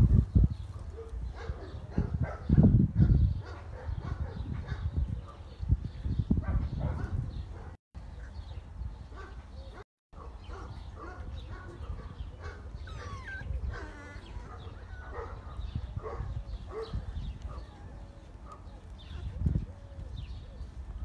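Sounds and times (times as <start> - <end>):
puppies yipping and whining: 12.3 - 15.4.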